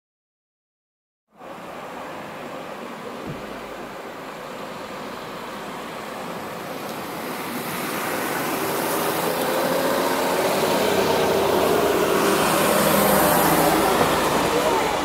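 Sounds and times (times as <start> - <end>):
car driving past: 4.5 - 15.0.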